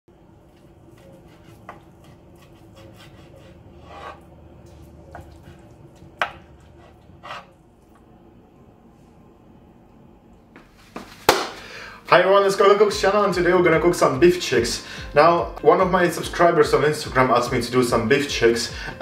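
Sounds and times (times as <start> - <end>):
low steady hum: 0.1 - 19.0
utensils scraping on cutting board: 0.9 - 4.3, 6.6 - 7.6.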